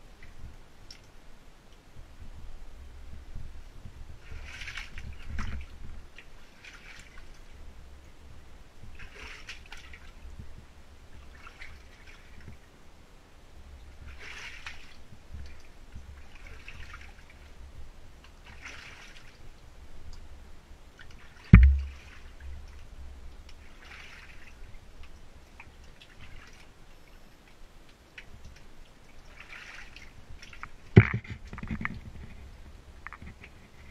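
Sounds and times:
shallow water sloshing and splashing: 4.1s - 7.8s, 8.8s - 12.7s, 13.8s - 19.7s, 20.9s - 33.9s
heavy thump: 21.5s - 22.1s.

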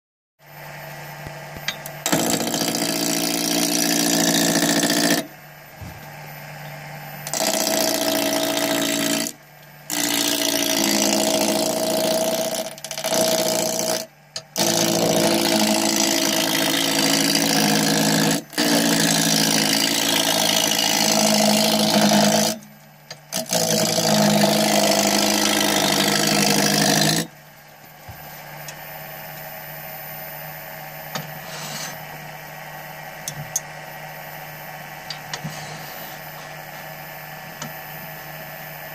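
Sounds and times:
turning tool cutting wood: 2.0s - 5.3s, 7.3s - 22.6s, 23.3s - 27.3s
wood lathe humming: 7.3s - 9.3s, 9.9s - 22.6s, 23.3s - 27.3s.

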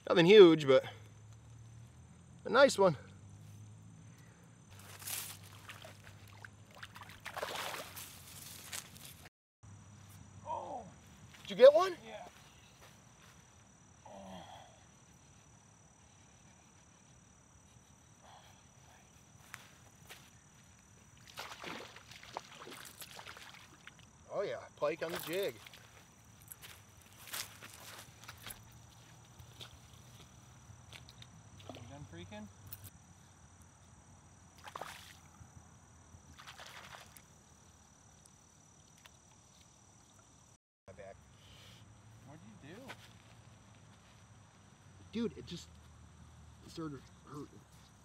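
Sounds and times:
fish splashing at water surface: 5.4s - 8.1s, 21.2s - 24.0s, 34.6s - 35.3s.

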